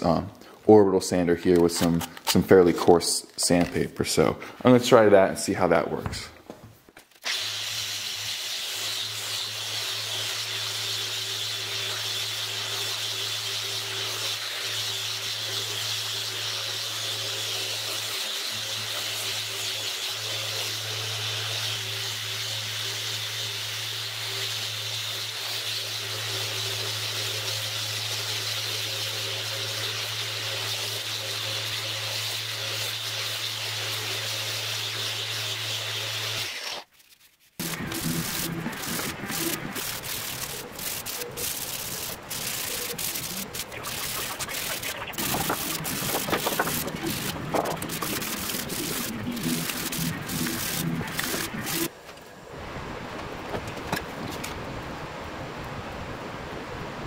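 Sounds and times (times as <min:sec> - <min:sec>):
orbital sander sanding wood: 0:07.3 - 0:51.9.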